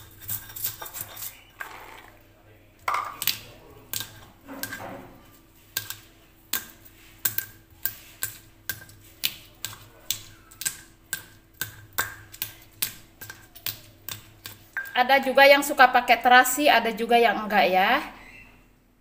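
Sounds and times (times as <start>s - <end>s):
stone pestle grinding in mortar: 0.0s - 2.1s.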